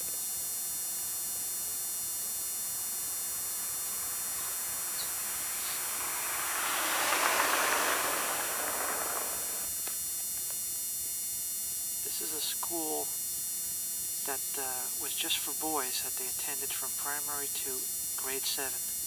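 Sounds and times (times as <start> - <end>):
electrical hum and hiss: 0.0 - 19.0
car passing on slushy street: 2.5 - 9.9.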